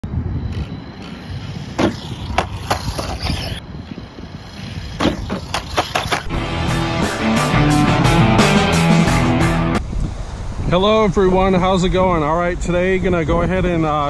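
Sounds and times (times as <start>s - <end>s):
wind rumbling on microphone: 0.0s - 6.3s, 9.8s - 14.0s
music: 6.3s - 9.8s.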